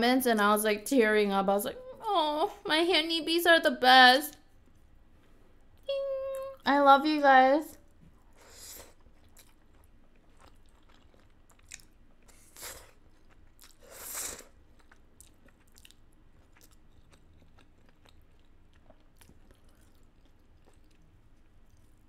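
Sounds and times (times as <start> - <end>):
close chewing: 8.2 - 22.0.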